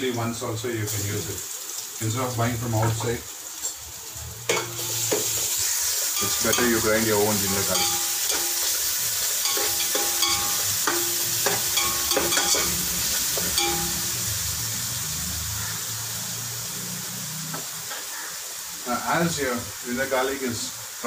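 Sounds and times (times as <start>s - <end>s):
onions sizzling in a pot: 0.0s - 21.0s
metal spoon scraping a pot: 6.2s - 14.1s.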